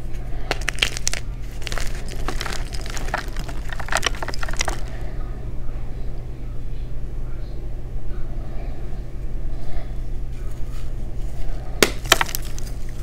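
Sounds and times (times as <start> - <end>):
chalk crunching: 0.4 - 5.0.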